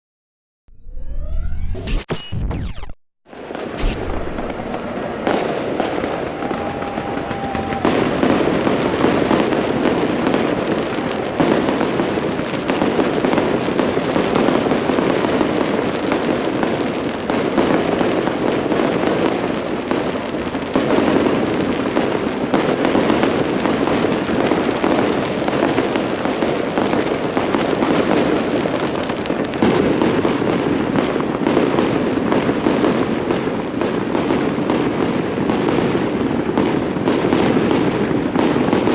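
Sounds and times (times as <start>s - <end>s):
firework whistle: 0.7s - 20.2s
fireworks booming and crackling: 2.6s - 38.9s.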